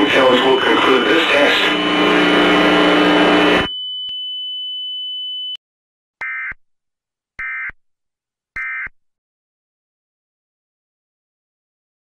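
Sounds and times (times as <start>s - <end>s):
loud noisy mix: 0.0s - 3.7s
steady high-pitched pure tone: 0.0s - 3.8s.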